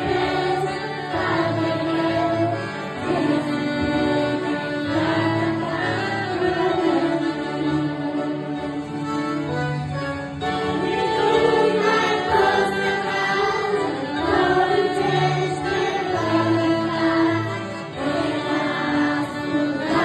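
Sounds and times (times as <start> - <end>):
children singing in unison: 0.0 - 6.7, 10.7 - 20.0.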